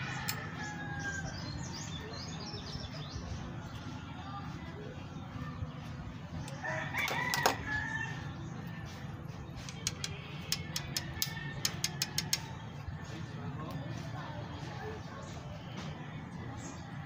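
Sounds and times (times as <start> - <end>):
rooster crowing: 0.0 - 1.5, 6.6 - 8.3.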